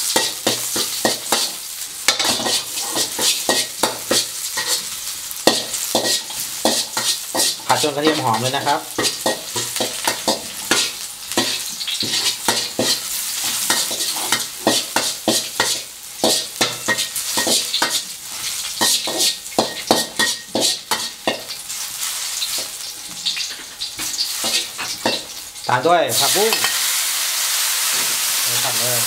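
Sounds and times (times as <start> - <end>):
garlic sizzling in hot oil: 0.0 - 29.0
metal spatula scraping wok: 0.1 - 25.4, 26.1 - 26.9.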